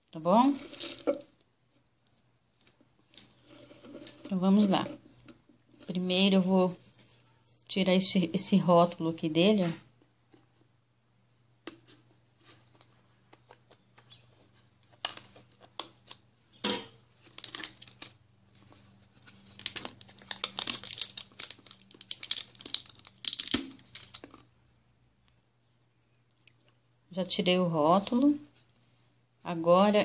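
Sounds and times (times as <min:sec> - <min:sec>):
label peeling off plastic bottle: 0:17.3 - 0:24.4.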